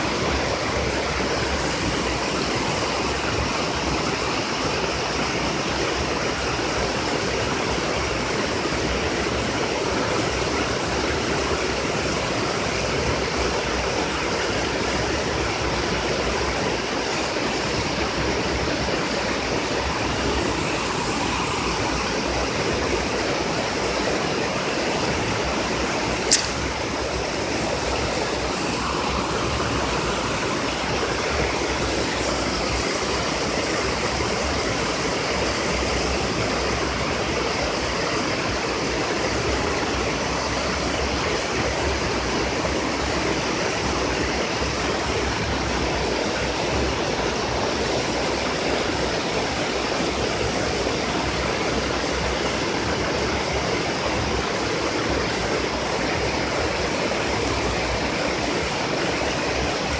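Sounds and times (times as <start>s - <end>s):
river water rushing: 0.0s - 59.9s
sharp click: 26.3s - 26.8s.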